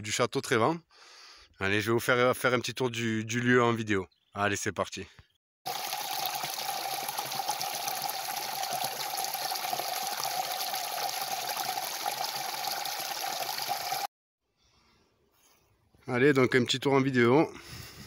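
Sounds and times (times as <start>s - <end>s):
water splashing into pool: 5.7s - 14.1s.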